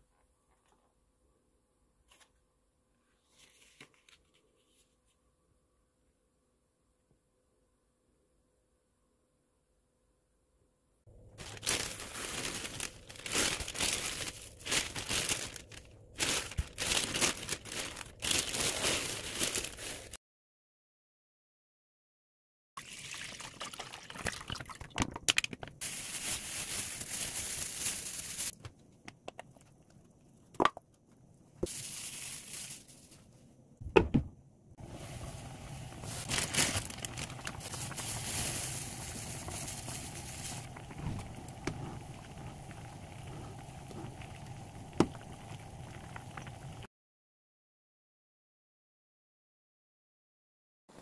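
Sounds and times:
liquid pouring: 22.8s - 25.0s
stew bubbling in a pot: 34.8s - 46.9s.

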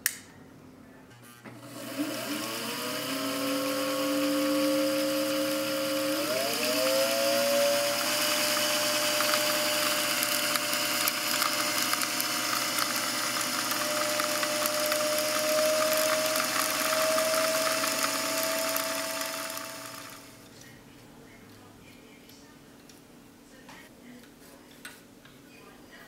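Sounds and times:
sewing machine motor whine: 1.5s - 20.4s.

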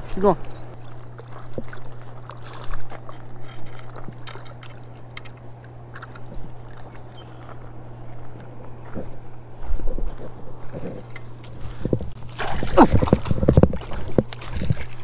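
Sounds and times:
small waves lapping: 0.0s - 10.9s, 11.5s - 15.0s
steady low hum: 0.0s - 15.0s.

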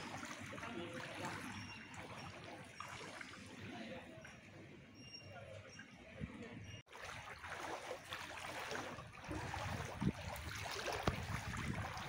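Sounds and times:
water sloshing around legs: 0.0s - 4.6s, 5.7s - 12.0s.

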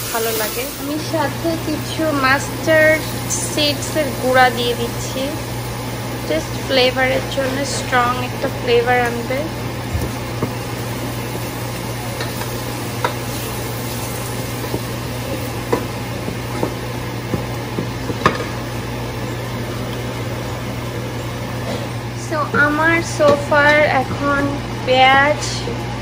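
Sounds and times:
food sizzling in a pan: 0.0s - 25.6s
steady low hum: 0.0s - 26.0s.

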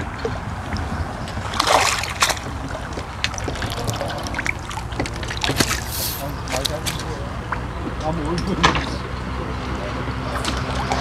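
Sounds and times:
fish splashing in water: 0.0s - 7.8s, 10.2s - 11.0s.

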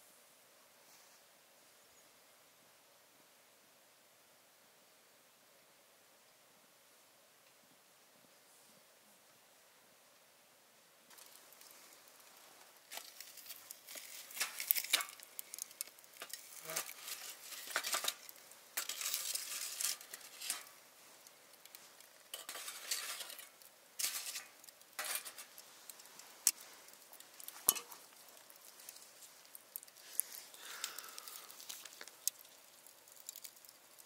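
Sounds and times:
utensils scraping cookware: 16.2s - 20.7s, 22.3s - 25.6s.

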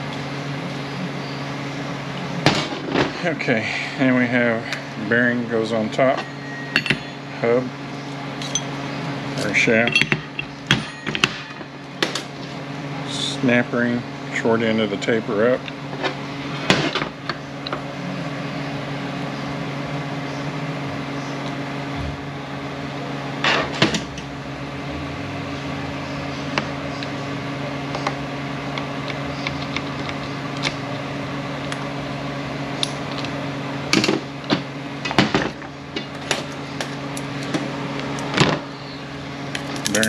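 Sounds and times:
low hum: 0.0s - 39.9s
metal parts clinking on workbench: 8.4s - 8.7s, 9.5s - 11.6s.

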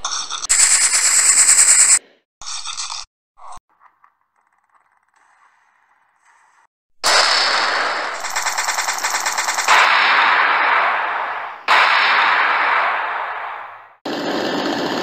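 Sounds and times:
machine-gun burst: 0.5s - 2.0s, 7.0s - 15.0s
explosions: 7.0s - 15.0s
mortar firing blast: 7.0s - 15.0s.

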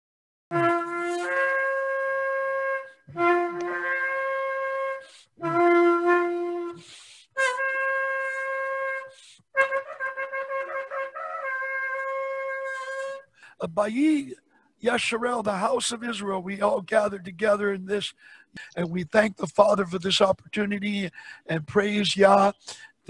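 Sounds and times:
shofar blasts: 0.5s - 13.3s.

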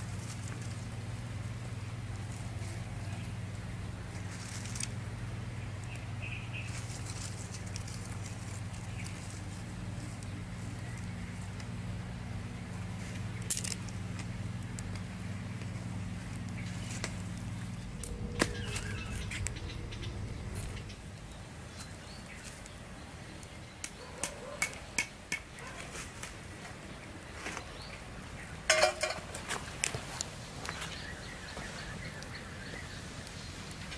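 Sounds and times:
low steady hum: 0.0s - 23.7s
wood fire crackling and popping: 0.0s - 27.3s, 28.2s - 33.9s
metal pot clanking on wire grill: 28.7s - 29.4s.

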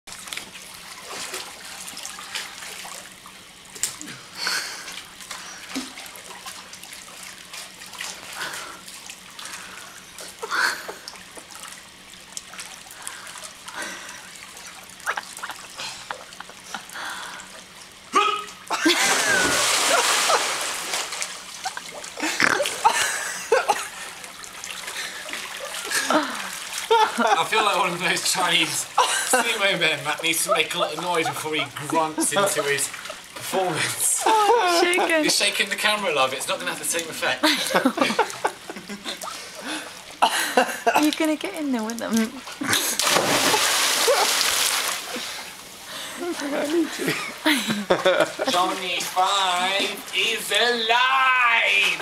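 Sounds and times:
pool water splashing: 0.1s - 52.0s
heavy splashing: 18.1s - 37.3s, 42.6s - 45.6s.

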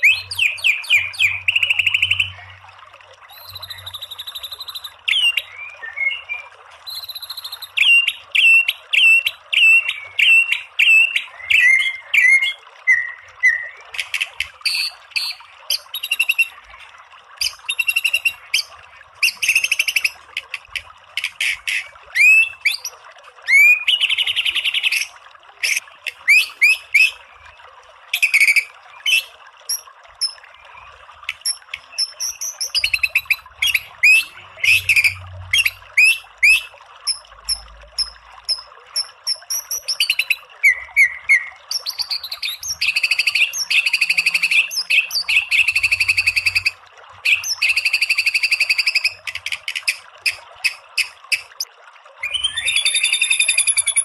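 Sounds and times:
bird whistling song: 0.0s - 2.4s, 3.3s - 16.6s, 17.4s - 20.2s, 22.1s - 27.2s, 31.5s - 37.6s, 38.5s - 49.2s, 52.2s - 54.0s.

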